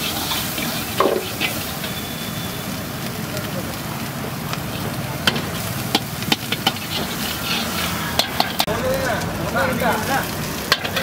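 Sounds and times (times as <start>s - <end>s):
ladle clanking against wok: 0.0s - 2.0s, 4.7s - 8.7s, 10.7s - 11.0s
metal ladle stirring: 0.0s - 2.0s, 5.3s - 8.7s
food sizzling in a wok: 0.0s - 11.0s.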